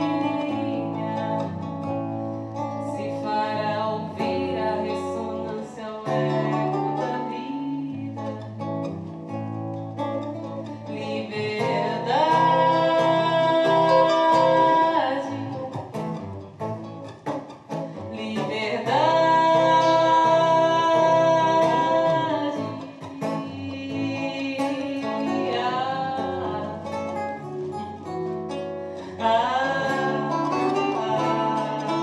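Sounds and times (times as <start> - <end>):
woman singing: 0.0 - 9.3, 10.3 - 16.0, 17.9 - 32.0
classical guitar playing: 0.0 - 32.0.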